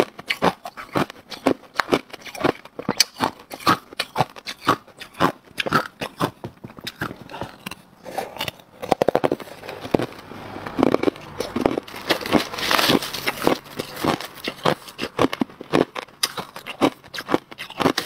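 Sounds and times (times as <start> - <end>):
ice being chewed crunching: 0.0 - 18.0
crushed ice stirred by fingers: 10.8 - 15.4.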